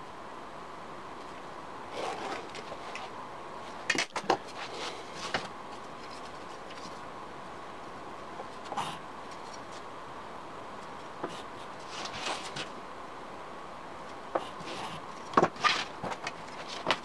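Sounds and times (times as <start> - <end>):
pencil scratching on plywood: 14.4 - 15.5
knocks and clicks handling wood: 15.3 - 17.0.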